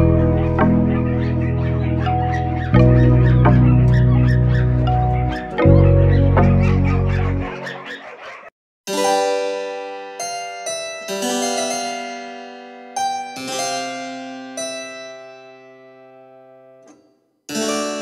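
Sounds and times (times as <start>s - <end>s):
keyboard notes ringing: 0.0s - 7.8s.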